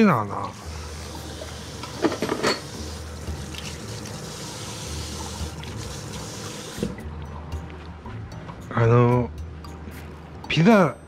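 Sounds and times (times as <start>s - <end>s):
tap running into sink: 5.2s - 7.0s.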